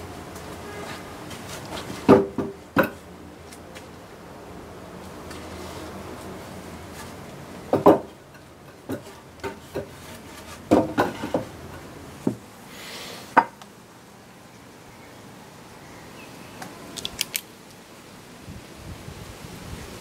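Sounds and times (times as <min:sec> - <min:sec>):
wooden plank knocking and thumping: 0:02.0 - 0:03.0, 0:07.7 - 0:08.2, 0:10.7 - 0:11.5.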